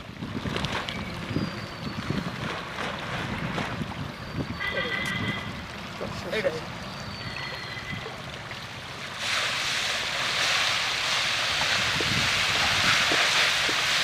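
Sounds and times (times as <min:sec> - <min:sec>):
fish splashing on water surface: 0:09.0 - 0:14.0.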